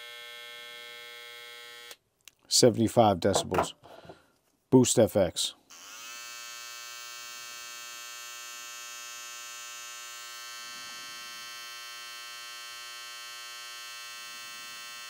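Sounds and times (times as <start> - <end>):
hair trimmer buzzing: 0.0 - 2.0, 5.7 - 15.0.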